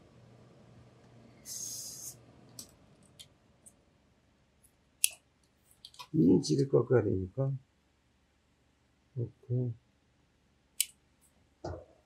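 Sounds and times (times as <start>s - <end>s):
short hiss: 1.4s - 2.2s.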